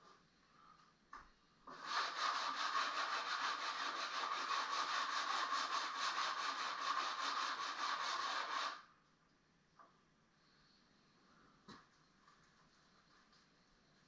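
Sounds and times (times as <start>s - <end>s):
sanding wood: 1.7s - 8.8s.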